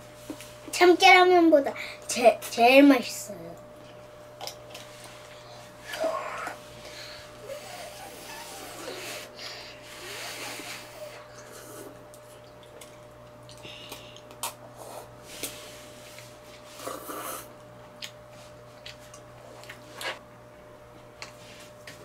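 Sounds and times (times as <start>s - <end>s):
faint steady hum: 0.0s - 22.0s
children slurping noodles: 5.8s - 12.9s, 16.6s - 17.6s.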